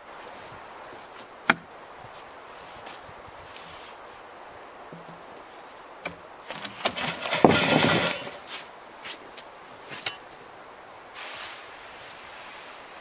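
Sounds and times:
wooden crash: 6.6s - 8.4s.

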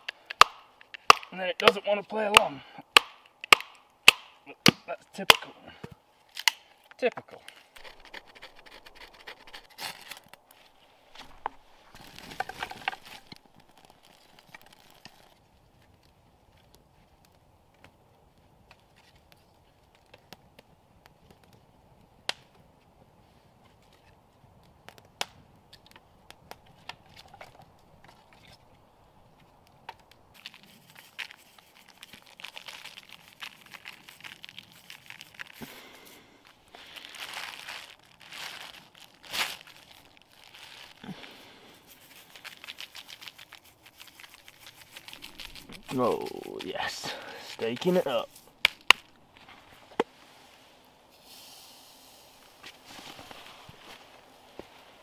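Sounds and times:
campfire crackling and popping: 0.0s - 55.0s
plastic bag crinkling: 7.6s - 15.4s, 30.3s - 49.2s
knife scraping shavings off stick: 7.8s - 10.2s.

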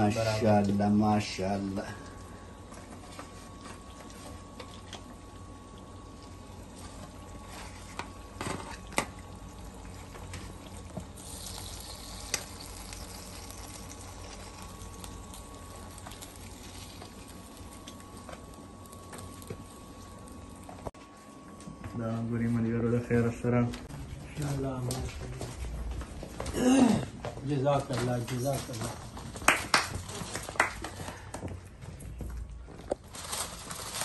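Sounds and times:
steady low hum: 0.0s - 34.0s
meat juices sizzling in foil tray: 3.1s - 20.8s.

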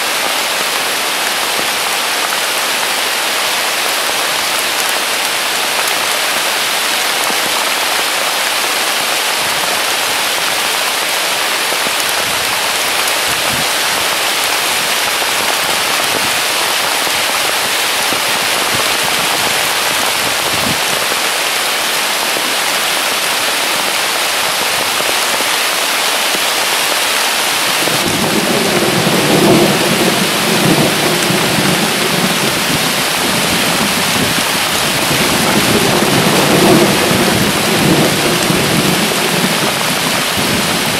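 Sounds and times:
heavy rain pouring: 0.0s - 40.9s
low rolling thunder: 27.8s - 40.9s.

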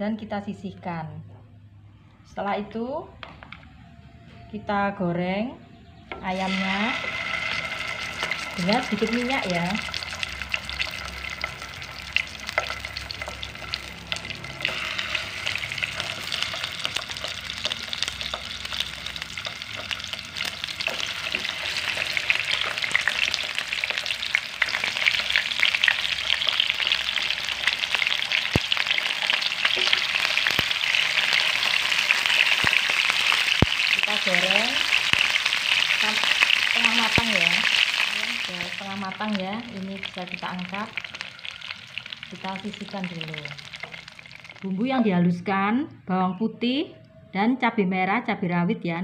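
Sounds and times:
chicken sizzling in pan: 6.3s - 44.7s.

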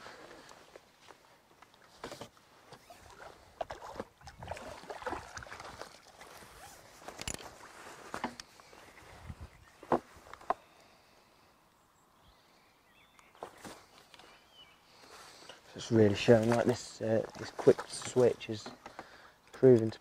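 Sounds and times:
fish splashing in water: 2.9s - 6.4s
clicks and knocks of fishing tackle: 7.0s - 8.6s, 16.2s - 20.0s.

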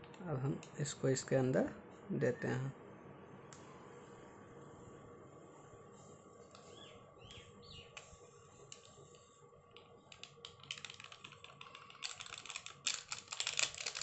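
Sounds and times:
plastic sachet crinkling: 10.1s - 14.0s.

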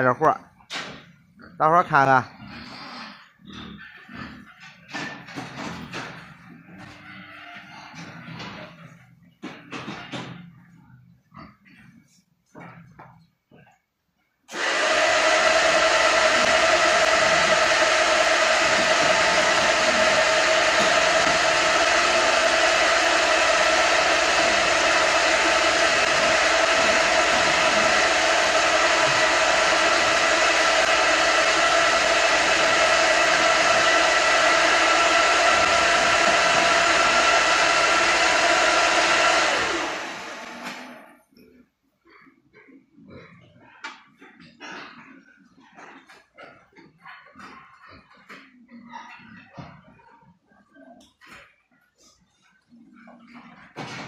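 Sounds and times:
electric motor humming: 14.5s - 41.0s.

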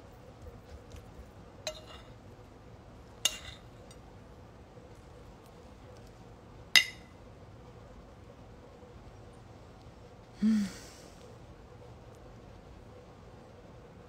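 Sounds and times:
tableware clinking: 1.7s - 2.2s, 3.3s - 4.0s, 6.8s - 7.1s.

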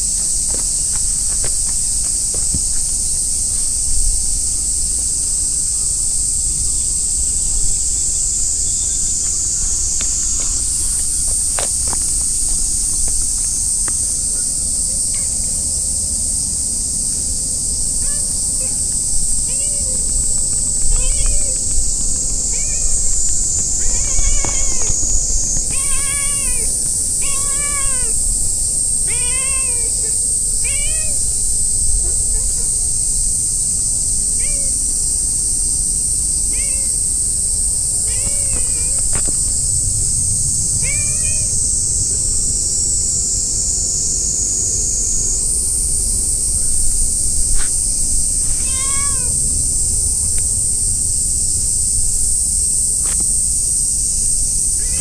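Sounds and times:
insect chorus shrilling: 0.0s - 55.0s
steady high-pitched hiss: 0.0s - 55.0s
cat meowing: 22.5s - 23.0s, 23.9s - 24.9s, 25.7s - 28.2s, 29.1s - 30.0s, 30.6s - 31.2s, 36.5s - 36.9s, 38.1s - 39.0s, 40.8s - 41.5s, 48.4s - 49.4s.

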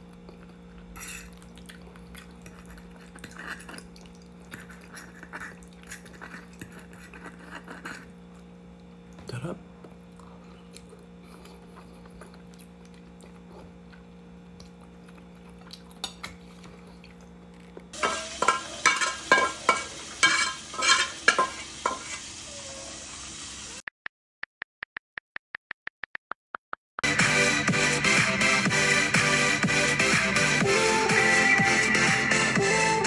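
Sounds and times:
faint steady hum: 0.0s - 23.8s
dishes and cutlery clinking: 18.0s - 22.2s.

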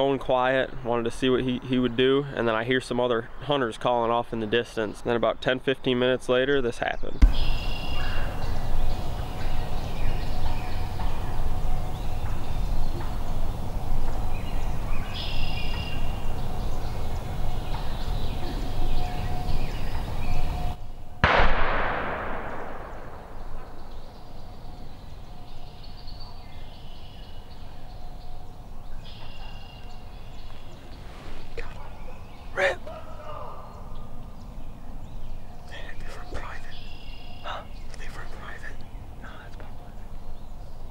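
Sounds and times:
shotgun shot echoing: 7.2s - 8.2s, 21.2s - 24.0s.

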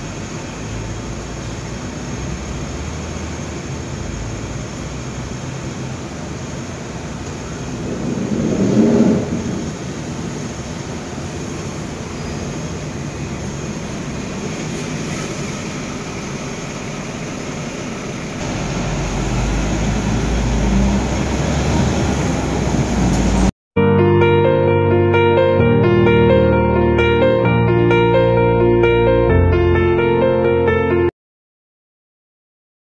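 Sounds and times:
tram running noise: 0.0s - 23.5s
deep rumble: 6.9s - 12.5s, 15.4s - 23.5s.

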